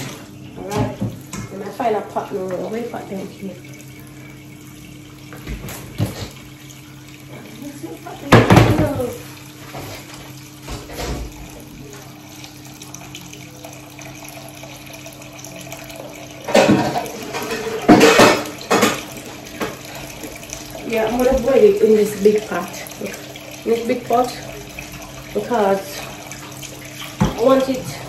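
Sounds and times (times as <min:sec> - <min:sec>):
tap running into sink: 0:00.0 - 0:01.8, 0:05.2 - 0:12.1, 0:15.4 - 0:28.0
metal pot clattering: 0:16.5 - 0:19.8.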